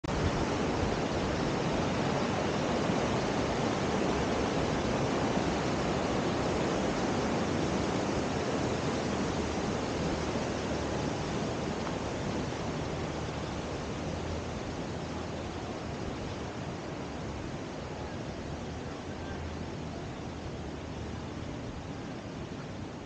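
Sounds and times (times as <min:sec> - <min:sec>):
stream flowing over stones: 0:00.1 - 0:23.0.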